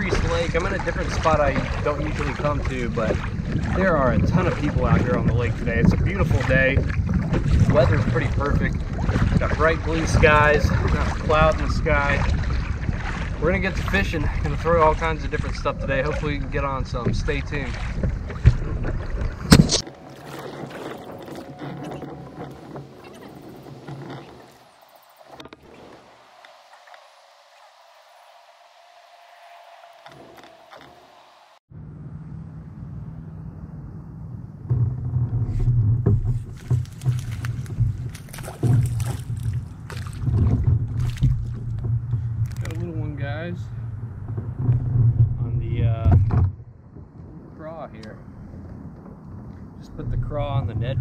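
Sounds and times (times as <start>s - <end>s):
water around kayak: 0.0s - 31.6s, 34.4s - 51.0s
wind rumbling on microphone: 0.0s - 31.6s, 32.3s - 51.0s
steady low hum: 25.9s - 45.6s
fish splashing at the surface: 36.5s - 41.6s.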